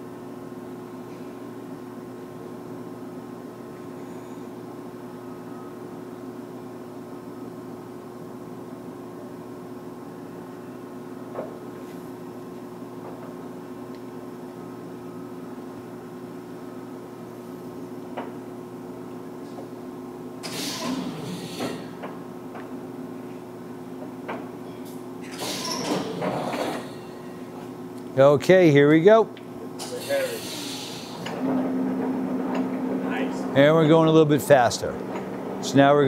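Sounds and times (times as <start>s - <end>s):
lathe drive humming: 30.4s - 36.0s.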